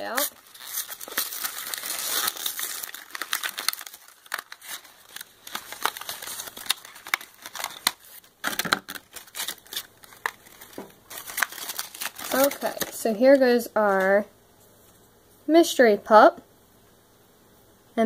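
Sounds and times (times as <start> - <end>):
cardboard box tearing open: 0.0 - 13.0.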